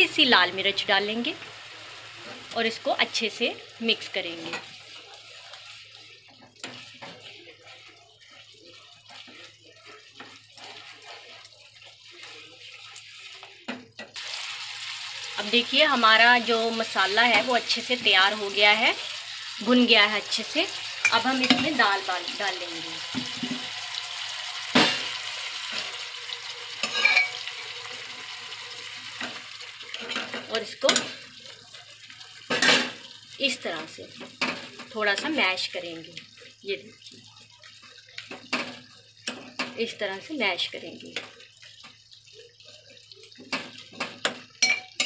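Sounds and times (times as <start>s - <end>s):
sauce sizzling in a pan: 0.0s - 45.0s
thick sauce bubbling and squelching: 4.6s - 13.9s.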